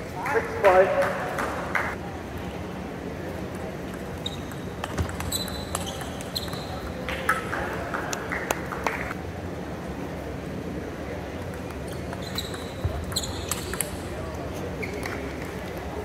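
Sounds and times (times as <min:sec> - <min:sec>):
short high squeaks: 0:11.9 - 0:13.7.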